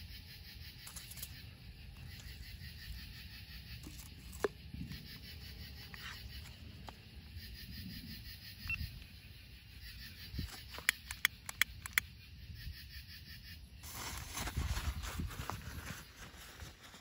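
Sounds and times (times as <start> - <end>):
small clicks and knocks: 10.6 - 12.0.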